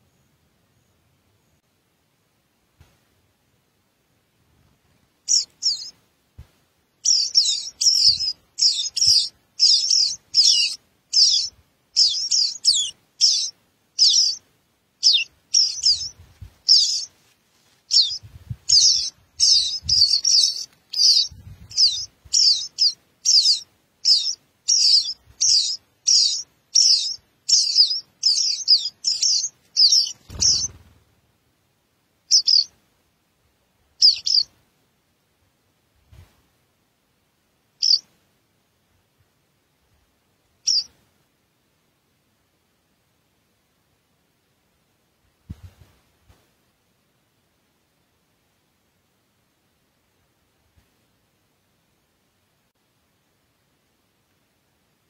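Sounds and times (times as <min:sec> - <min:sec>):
nestlings chirping: 0:05.2 - 0:05.9, 0:07.0 - 0:14.4, 0:15.0 - 0:17.2, 0:17.9 - 0:31.0, 0:32.3 - 0:32.7, 0:34.0 - 0:34.5, 0:37.8 - 0:38.1, 0:40.6 - 0:40.9.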